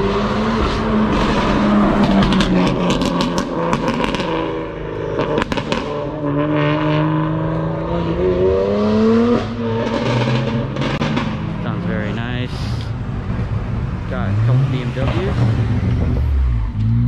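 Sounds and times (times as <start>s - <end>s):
car engine revving: 0.0s - 17.0s
exhaust crackles and pops: 0.6s - 4.4s, 5.2s - 6.0s.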